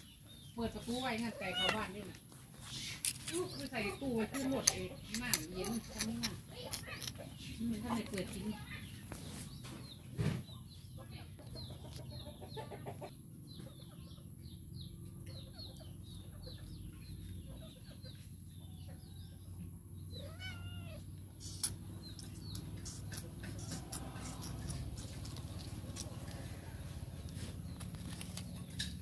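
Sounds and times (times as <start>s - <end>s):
small birds chirping: 0.0s - 29.0s
cat meowing: 1.3s - 2.0s, 20.2s - 21.1s.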